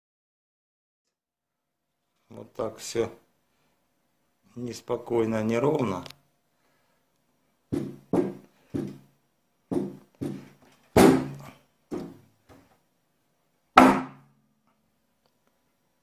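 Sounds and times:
sheet steel popping thunks: 9.7 - 12.2.

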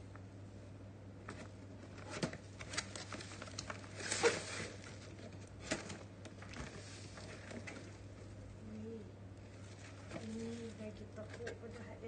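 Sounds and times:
scraping rustle of cardboard: 2.0 - 7.9.

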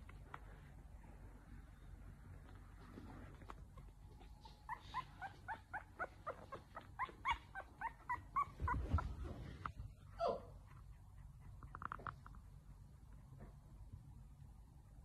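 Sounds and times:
puppy whimpering: 3.7 - 9.6.

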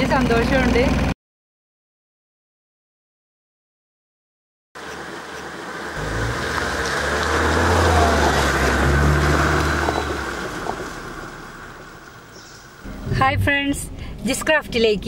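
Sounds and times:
car driving past on leaves: 4.8 - 12.8.

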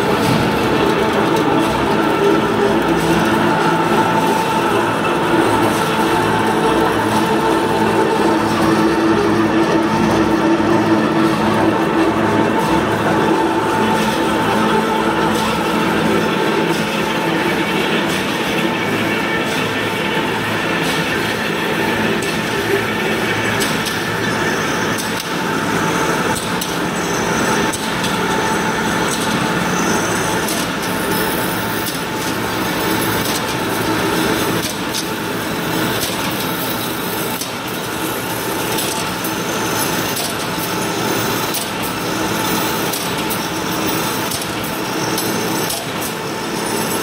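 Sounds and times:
loud mechanical din: 0.0 - 47.0.

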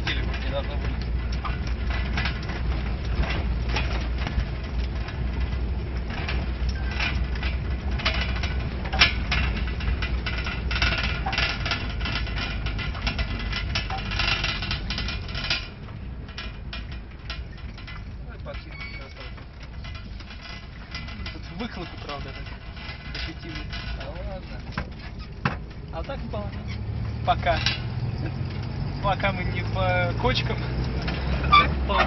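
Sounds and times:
low engine rumble: 0.0 - 32.0
vehicle body rattling: 0.0 - 32.0.

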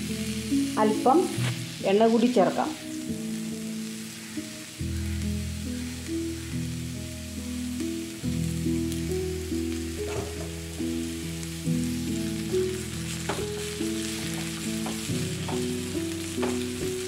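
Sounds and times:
background music: 0.0 - 17.0
vegetables sizzling in oil: 0.0 - 17.0
wooden spatula knocking and scraping: 13.2 - 15.8, 16.4 - 16.9.

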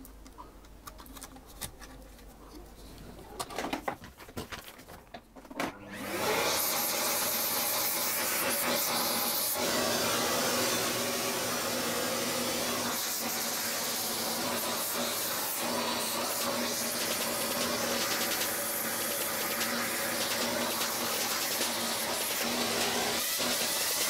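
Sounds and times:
electric dust cleaner motor hum: 5.8 - 24.0
air rushing through nozzle: 6.3 - 24.0.

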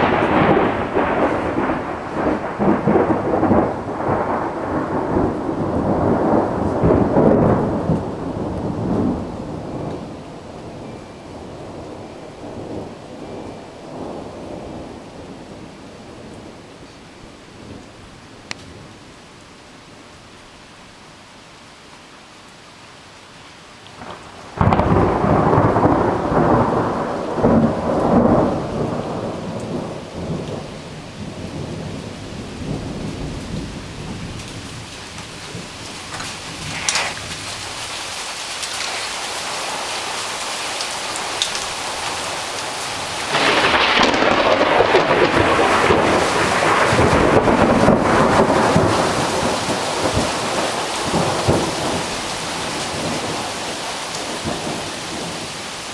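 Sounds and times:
rumbling thunder: 0.0 - 15.5, 24.0 - 38.0, 38.6 - 55.5
steady rain hiss: 0.0 - 55.9.

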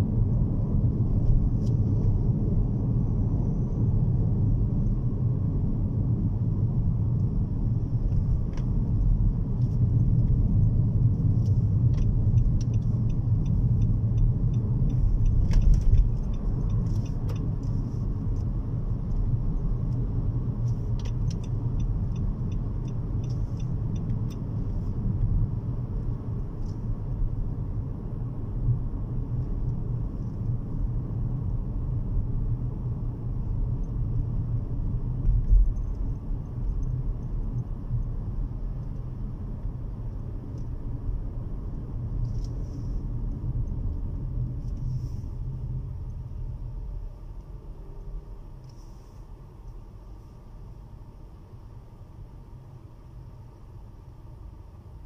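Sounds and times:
engine and road rumble: 0.0 - 55.0.

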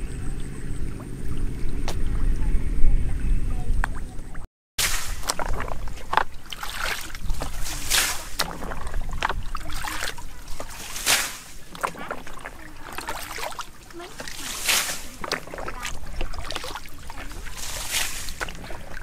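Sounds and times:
muddy water sloshing: 0.0 - 19.0
bucket scooping water: 3.8 - 19.0.

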